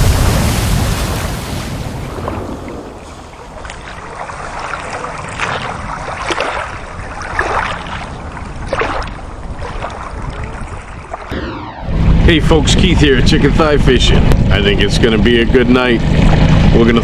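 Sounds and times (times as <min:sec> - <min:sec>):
water splashing: 0:00.0 - 0:11.3.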